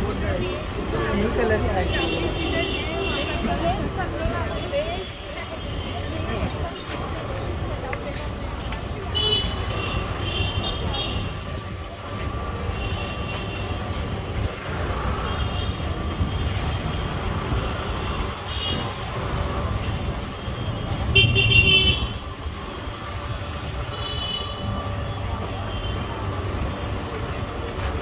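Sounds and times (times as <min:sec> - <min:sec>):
murmur of voices: 0:00.0 - 0:12.6
motorbike and scooter engines: 0:00.0 - 0:28.0
loud vehicle horn honking: 0:21.1 - 0:22.2.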